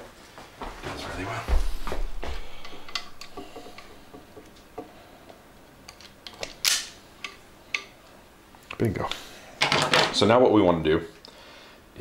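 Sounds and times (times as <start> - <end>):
wire stripper snapping: 6.3 - 6.9.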